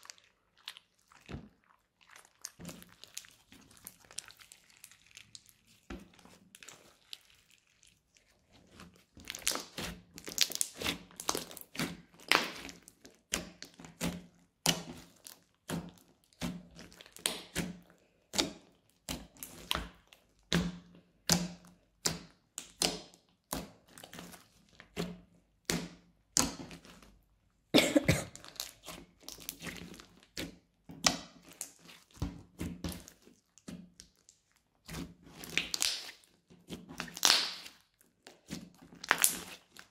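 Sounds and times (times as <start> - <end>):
crunchy slime clicking and popping: 9.2 - 16.0, 35.4 - 36.3, 36.9 - 38.4, 39.0 - 39.8.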